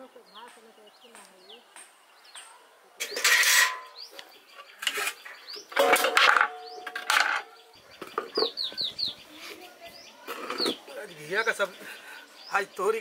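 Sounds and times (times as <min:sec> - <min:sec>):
birds chirping: 0:00.0 - 0:13.0
utensils clanking: 0:03.0 - 0:04.1, 0:04.8 - 0:07.6.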